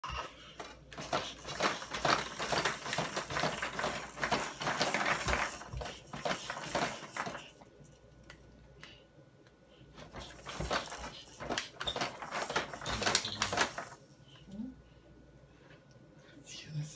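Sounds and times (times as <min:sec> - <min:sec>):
plastic toys clattering: 0:00.6 - 0:08.0, 0:10.0 - 0:14.0.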